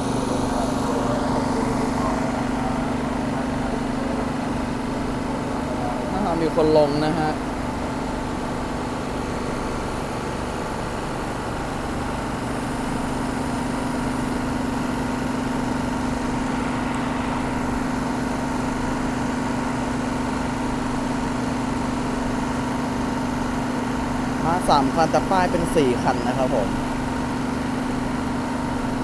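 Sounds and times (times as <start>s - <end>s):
diesel train engines idling: 0.0s - 22.8s.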